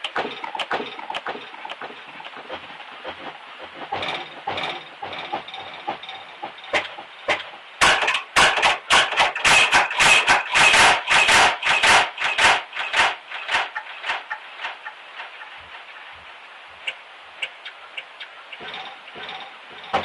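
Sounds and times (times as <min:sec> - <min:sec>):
harsh clicks and crackling: 0:00.0 - 0:15.4.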